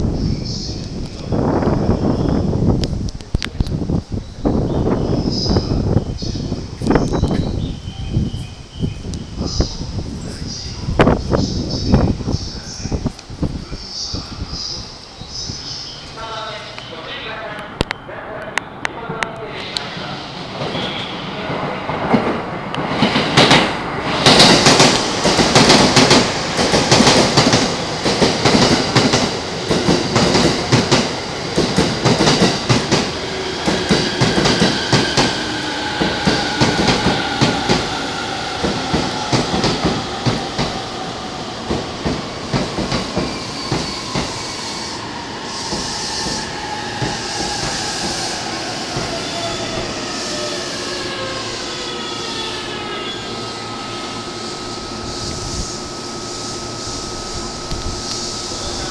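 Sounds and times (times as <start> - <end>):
traction motors whining: 43.5 - 58.9.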